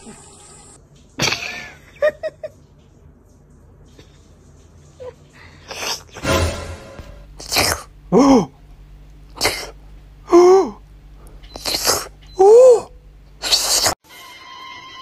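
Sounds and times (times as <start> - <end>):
sharp sneeze-like bursts: 7.4 - 8.5, 9.3 - 9.8, 13.4 - 14.0.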